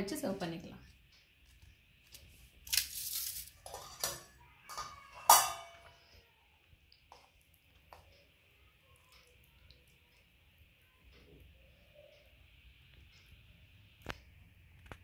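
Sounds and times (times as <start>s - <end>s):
steel plates and bowl clinking: 3.0s - 6.0s.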